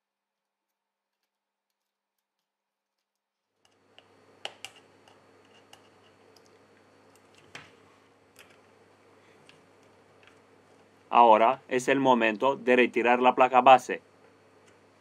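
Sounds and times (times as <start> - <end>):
faint steady hum: 3.6 - 15.0.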